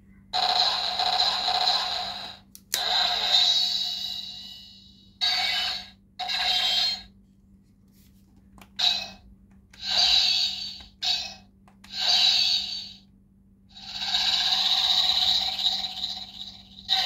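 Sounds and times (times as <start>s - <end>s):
toy speaker hissing bursts: 9.8s - 13.0s.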